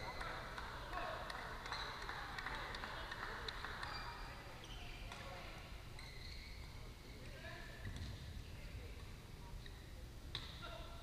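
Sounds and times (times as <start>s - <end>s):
shoes squeaking on court: 3.8s - 8.2s.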